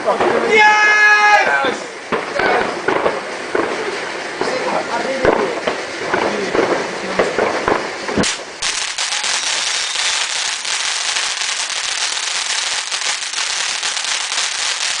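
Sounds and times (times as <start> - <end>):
firework fountain crackling: 0.0 - 15.0
firework pop: 7.2 - 8.4.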